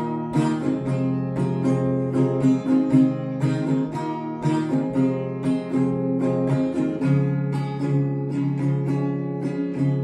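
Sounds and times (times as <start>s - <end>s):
acoustic guitar strumming: 0.0s - 10.0s.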